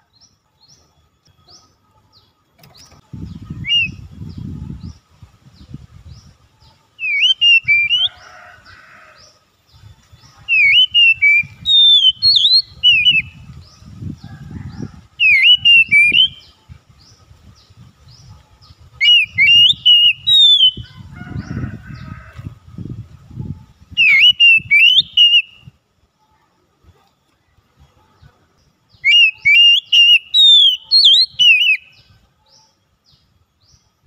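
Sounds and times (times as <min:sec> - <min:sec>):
bird singing whistled notes: 0:00.0 - 0:08.2, 0:09.7 - 0:14.1, 0:14.7 - 0:21.0, 0:23.4 - 0:25.8, 0:28.9 - 0:33.9.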